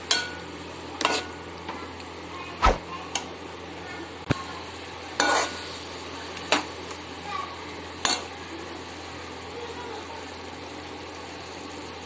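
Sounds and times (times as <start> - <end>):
frying sizzle: 0.0 - 12.0.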